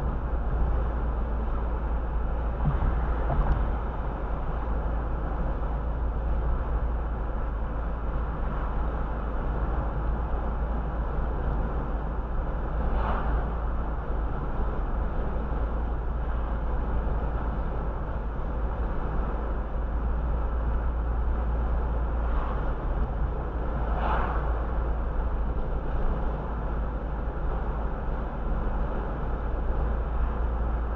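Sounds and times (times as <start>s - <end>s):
road and tyre noise: 0.0s - 30.9s
passing traffic whooshes: 12.6s - 14.4s, 21.8s - 27.8s.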